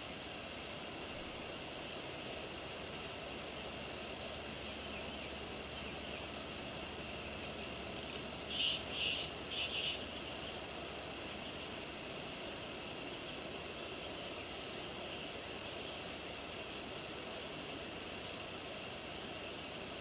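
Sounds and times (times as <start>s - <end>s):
high insect drone: 0.9s - 19.9s
raspy bird calls: 7.0s - 10.7s.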